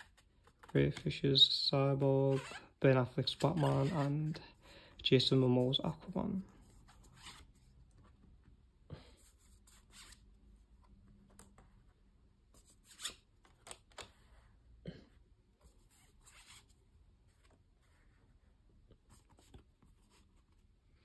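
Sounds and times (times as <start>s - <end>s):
cards rustling on carpet: 0.0s - 1.2s.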